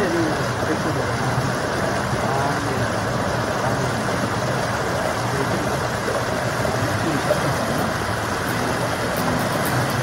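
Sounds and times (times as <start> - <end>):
stream pouring over rocks: 0.0 - 10.0.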